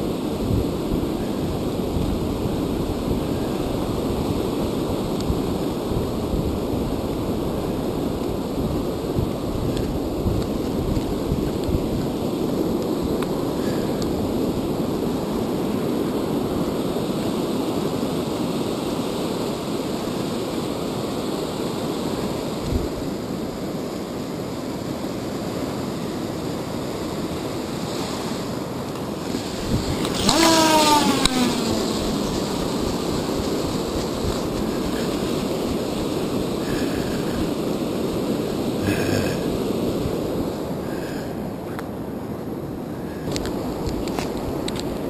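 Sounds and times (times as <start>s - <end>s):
wind buffeting microphone: 0.0s - 18.0s, 29.0s - 41.1s
surf washing on beach: 0.0s - 45.0s.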